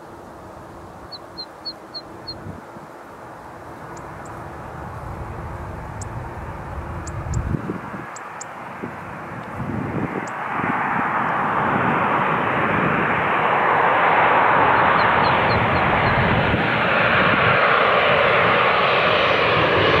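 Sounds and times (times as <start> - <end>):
jet engine roar: 0.0 - 20.0.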